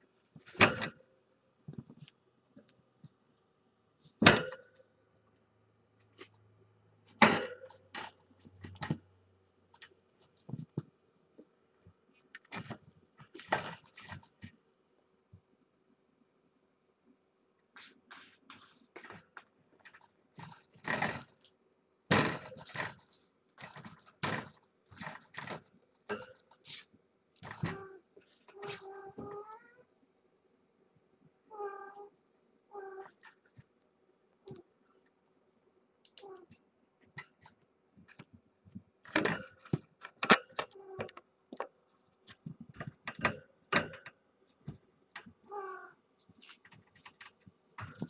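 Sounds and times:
kittens scuffling and thumping: 9.8s - 14.6s
kittens' paws thumping and clicking: 9.8s - 14.6s, 36.1s - 45.5s, 46.2s - 48.0s.

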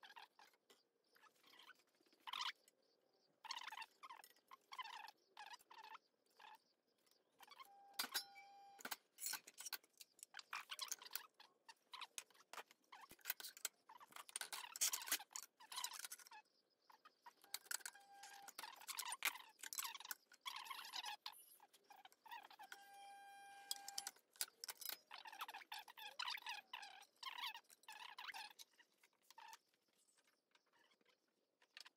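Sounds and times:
short metallic rings: 7.8s - 8.6s.

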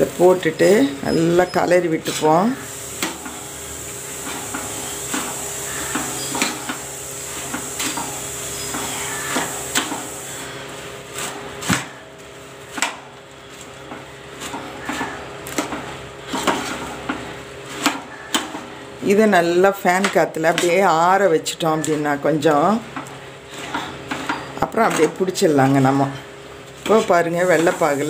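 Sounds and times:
puffed rice rustling: 0.0s - 19.4s.

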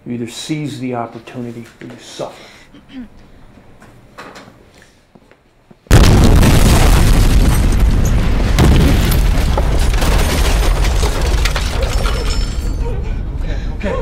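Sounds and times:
loud explosion: 5.9s - 12.2s.

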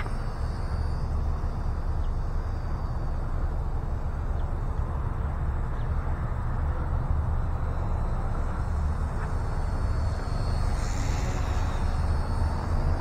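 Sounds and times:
faint high-pitched whine: 0.0s - 13.0s.

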